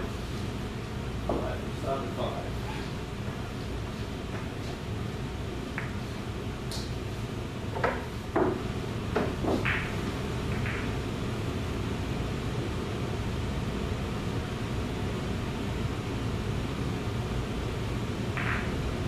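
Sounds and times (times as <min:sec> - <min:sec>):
steady low hum: 0:00.0 - 0:19.0
pool balls clicking: 0:07.7 - 0:11.0, 0:18.3 - 0:18.8.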